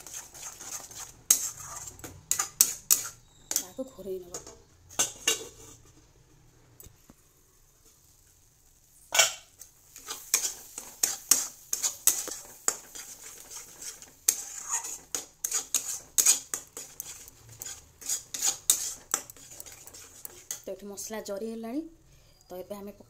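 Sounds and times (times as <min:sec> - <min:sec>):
metal spatula scraping a pan: 0:00.0 - 0:06.1, 0:09.1 - 0:20.7.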